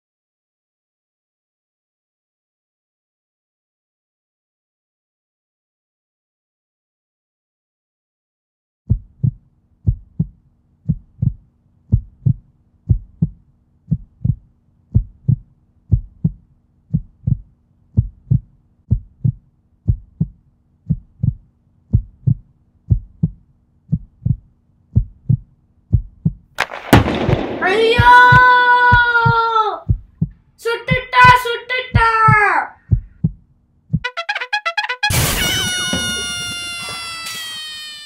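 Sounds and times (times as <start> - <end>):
heartbeat thumps: 8.9 - 34.2.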